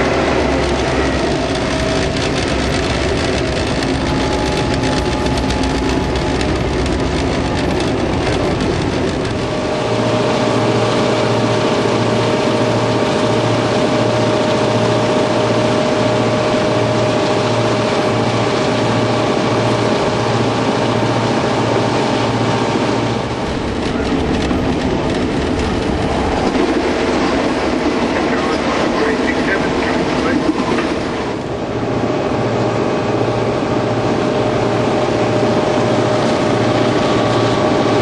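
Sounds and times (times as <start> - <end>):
wheels on rail: 0.0 - 32.2
locomotive engine running: 0.0 - 38.0.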